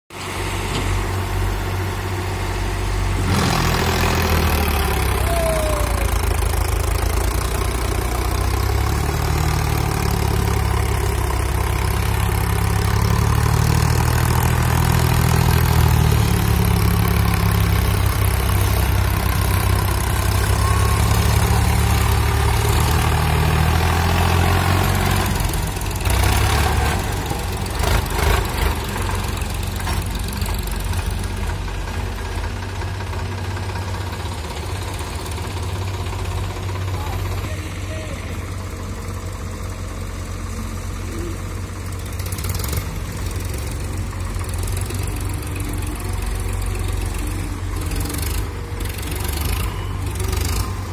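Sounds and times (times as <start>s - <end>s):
tractor diesel engine under load: 0.1s - 50.9s.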